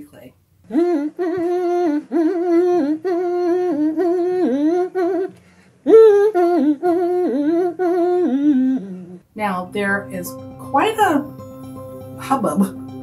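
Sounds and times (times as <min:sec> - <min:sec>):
person humming a tune: 0:00.6 - 0:09.2.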